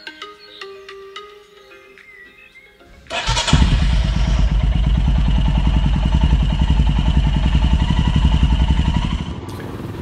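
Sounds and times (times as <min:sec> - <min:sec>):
motorcycle engine idling: 0:03.1 - 0:10.0.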